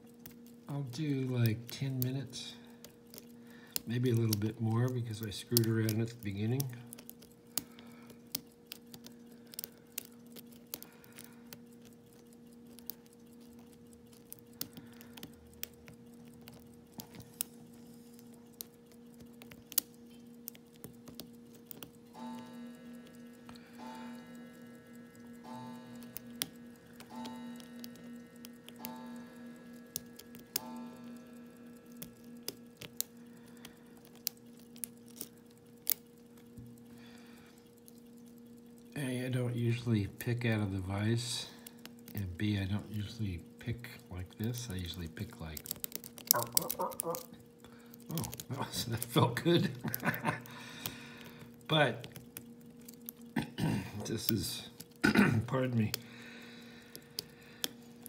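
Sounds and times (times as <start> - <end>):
faint steady hum: 0.0 - 58.0
lock pick metallic clicks: 34.0 - 36.9.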